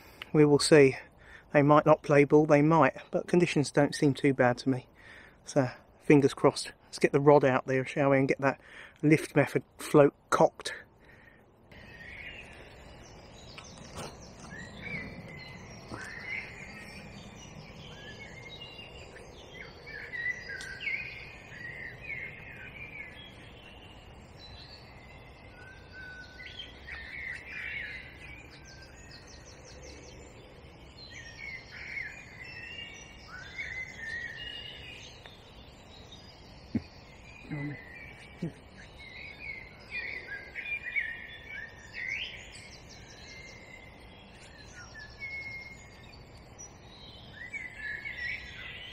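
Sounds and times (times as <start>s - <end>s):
low outdoor background: 0.0s - 48.9s
songbirds singing: 0.0s - 48.9s.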